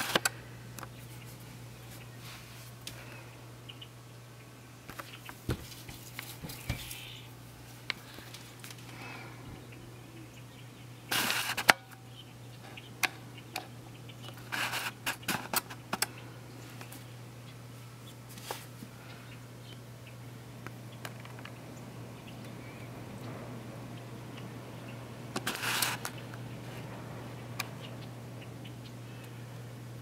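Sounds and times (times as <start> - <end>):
steady low hum: 0.0 - 30.0
camera handling rustles: 25.4 - 26.2.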